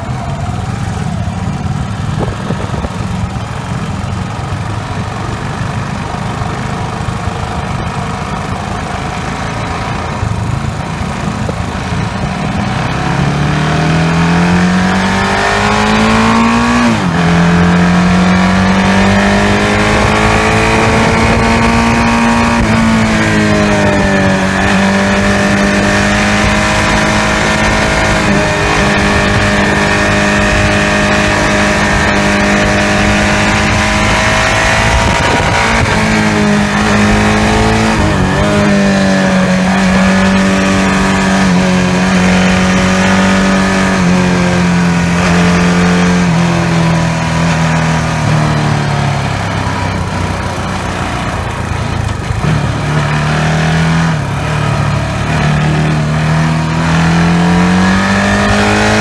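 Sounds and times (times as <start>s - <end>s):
wind rush on microphone: 0.0s - 3.6s, 18.6s - 45.5s
motorcycle engine accelerating: 0.0s - 59.0s.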